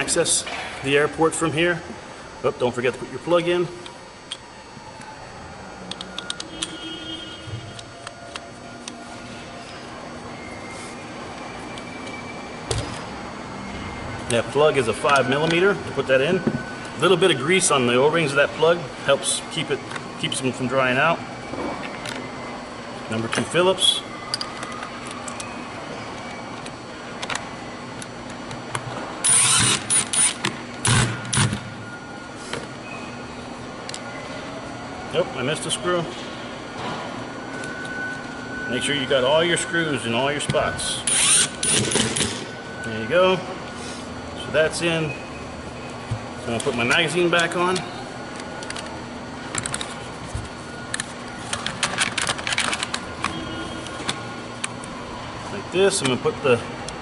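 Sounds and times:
cordless driver whirring: 29.2 - 31.0, 41.0 - 42.4.

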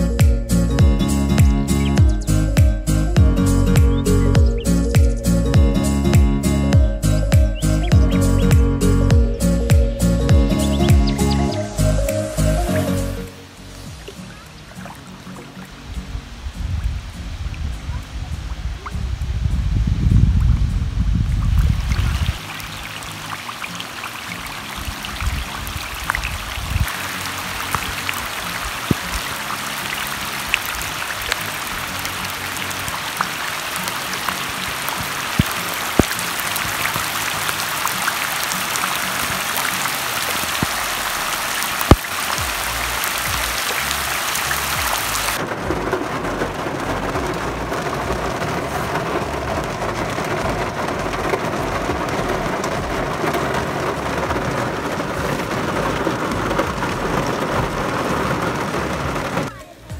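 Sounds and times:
heavy rain on river surface: 0.0 - 59.9
rain on a car from inside: 12.0 - 59.9.

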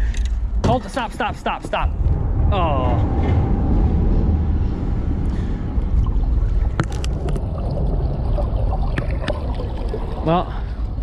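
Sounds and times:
steady low rumble: 0.0 - 11.0
water churning and splashing: 5.0 - 11.0.

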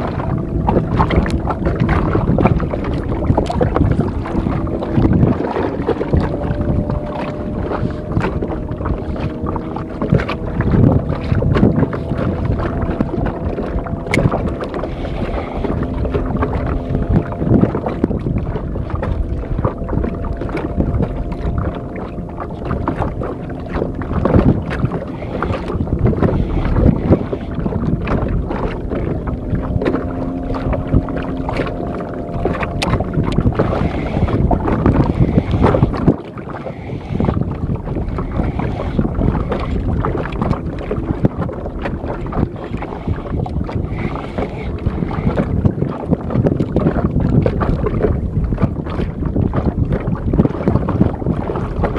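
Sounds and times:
water lapping against boat: 0.0 - 51.9
wind buffeting microphone: 0.0 - 51.9.

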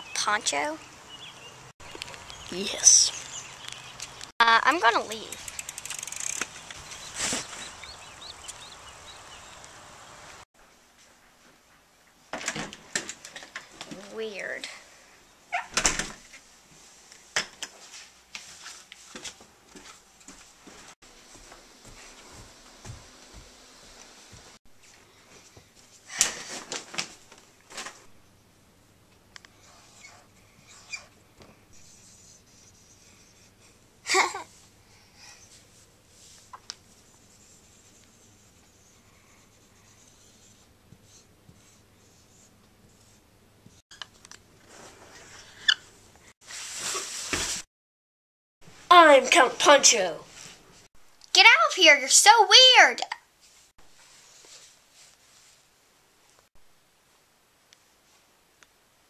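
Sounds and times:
marker scratching on whiteboard: 31.8 - 33.6, 37.1 - 43.2.

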